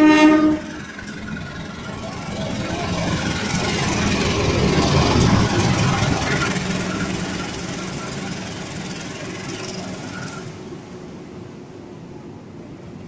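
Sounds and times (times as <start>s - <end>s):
locomotive engine passing: 0.0s - 12.0s
coaches rolling by: 0.7s - 10.9s.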